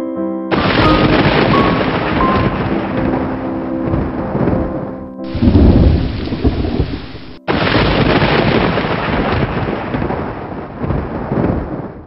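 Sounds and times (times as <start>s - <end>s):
heavy rain rushing: 0.5s - 12.0s
low thunder rumbling: 0.5s - 12.0s.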